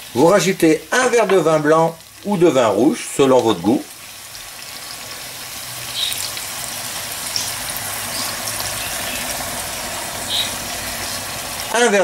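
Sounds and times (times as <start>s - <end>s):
mushrooms sizzling in a pan: 0.0s - 12.0s.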